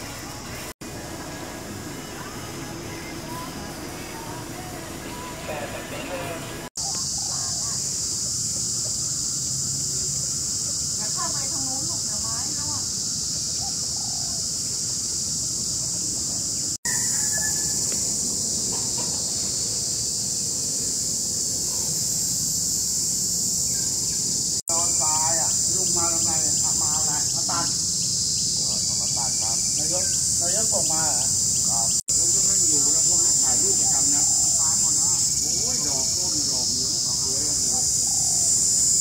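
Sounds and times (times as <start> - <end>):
faint voices talking: 0.0 - 8.1
insect chorus buzzing: 0.0 - 39.0.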